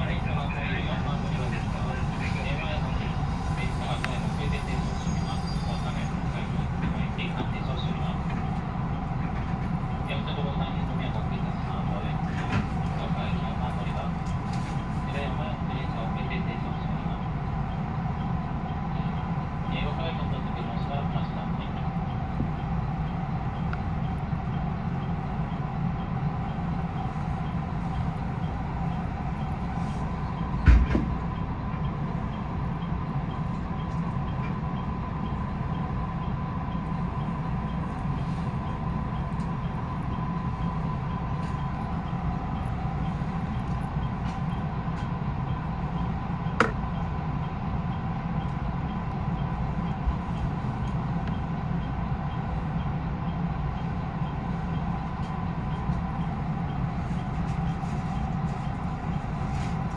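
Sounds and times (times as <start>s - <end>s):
train equipment humming: 0.0s - 59.9s.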